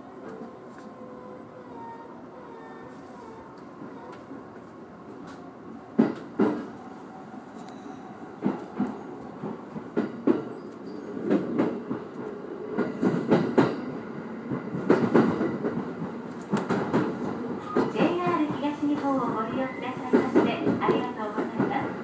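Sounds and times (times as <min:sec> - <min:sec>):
train wheels clacking over rail joints: 0:06.0 - 0:06.7, 0:14.5 - 0:19.4
train running rumble: 0:08.4 - 0:22.0.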